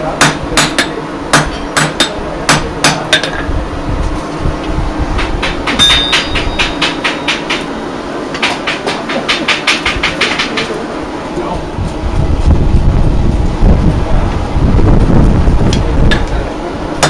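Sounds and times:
hammer striking iron on anvil: 0:00.1 - 0:03.5, 0:05.2 - 0:07.7, 0:08.4 - 0:10.8.

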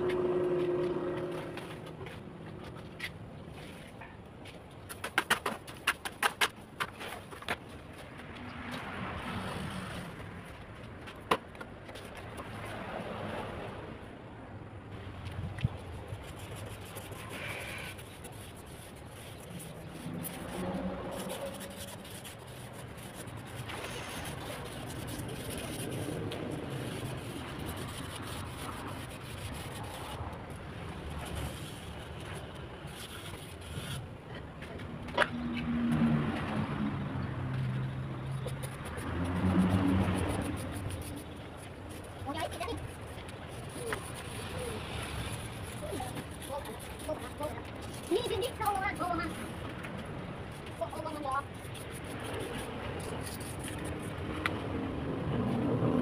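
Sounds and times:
steady background noise: 0:00.0 - 0:56.0
hand tools scraping wet mortar: 0:16.3 - 0:30.5, 0:38.4 - 0:49.4.

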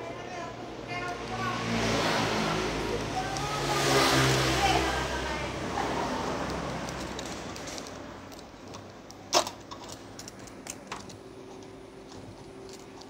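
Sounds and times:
light clicks and crackles: 0:06.4 - 0:13.0.

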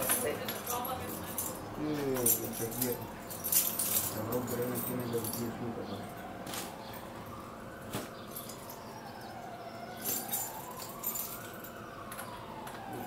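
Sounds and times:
siren wailing: 0:05.3 - 0:13.0.

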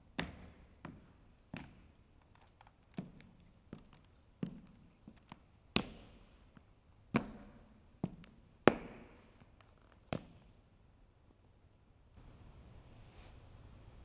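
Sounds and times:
hard shoes striking stage floor: 0:00.1 - 0:10.5.

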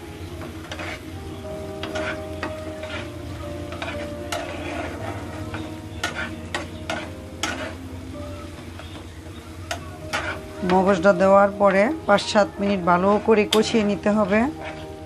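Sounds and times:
food sizzling in a pan: 0:00.0 - 0:15.0
spatula scraping a pan: 0:00.0 - 0:15.0.

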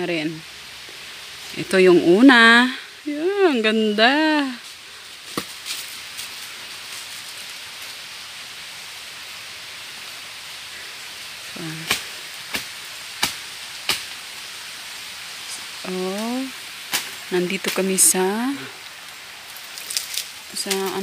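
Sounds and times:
steady high hiss: 0:00.0 - 0:21.0
machete chopping wood: 0:05.3 - 0:05.6, 0:11.8 - 0:14.1.

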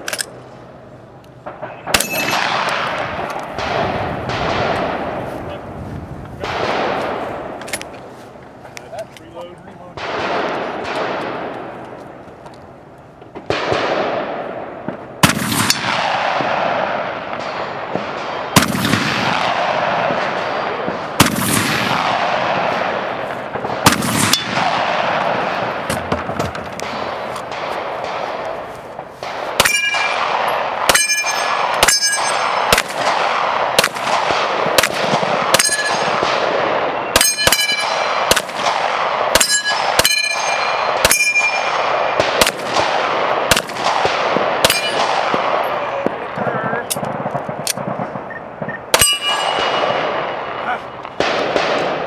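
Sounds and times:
gunshots: 0:01.4 - 0:05.7, 0:06.3 - 0:08.0, 0:08.9 - 0:12.0, 0:13.2 - 0:52.0
steel plates ringing: 0:02.0 - 0:02.5, 0:29.6 - 0:30.2, 0:30.9 - 0:32.7, 0:35.6 - 0:36.2, 0:37.2 - 0:38.2, 0:39.4 - 0:41.7, 0:44.7 - 0:45.1, 0:49.0 - 0:50.0.

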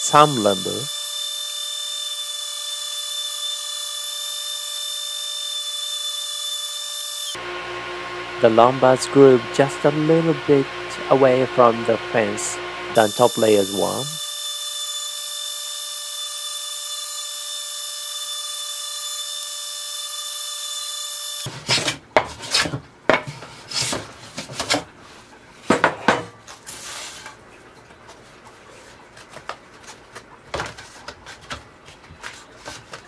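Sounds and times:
table saw whine: 0:00.0 - 0:21.5.

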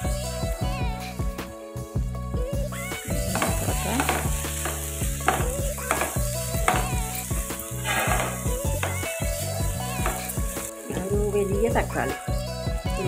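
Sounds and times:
onions sizzling in oil: 0:00.0 - 0:13.0
wooden spatula scraping a pan: 0:03.2 - 0:11.1.

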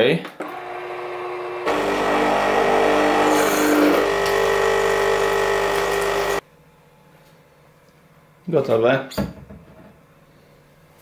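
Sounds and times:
espresso machine pump humming: 0:00.5 - 0:06.4.

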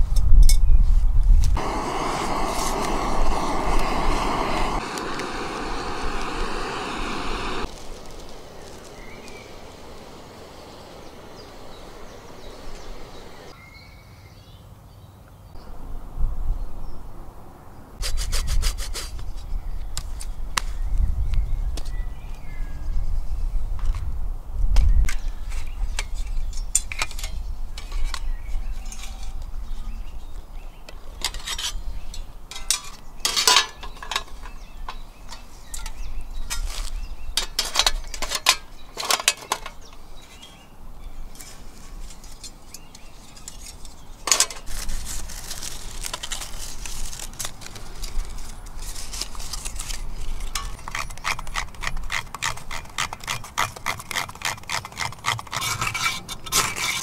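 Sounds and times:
metal panels clinking: 0:32.5 - 0:36.7, 0:44.2 - 0:44.7
metal scraping strokes: 0:48.3 - 0:57.0.

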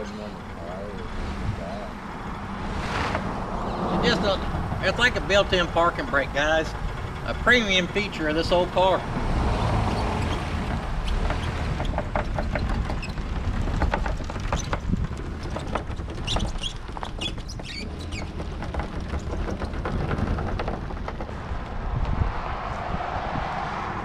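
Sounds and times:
car engine running: 0:00.0 - 0:15.1
chain rattling and clanking: 0:03.2 - 0:21.6
short high squeaks: 0:15.5 - 0:18.5.

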